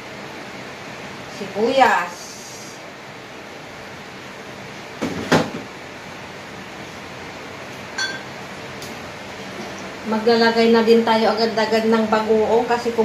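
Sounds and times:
steady hiss: 0:02.0 - 0:04.3
glass bottle clink: 0:08.0 - 0:08.3.

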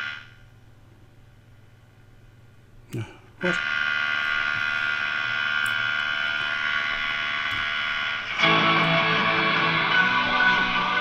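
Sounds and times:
music from a radio speaker: 0:08.3 - 0:11.0.

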